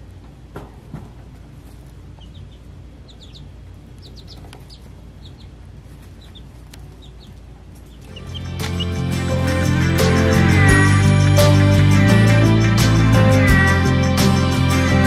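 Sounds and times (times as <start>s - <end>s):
faint low hum: 0.0s - 8.9s
baby chick peeping: 0.0s - 15.0s.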